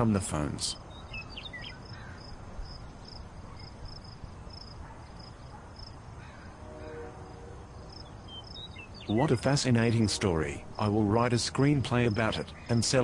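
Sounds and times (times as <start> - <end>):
low background noise: 0.0 - 13.0
cricket chirping: 0.8 - 9.9.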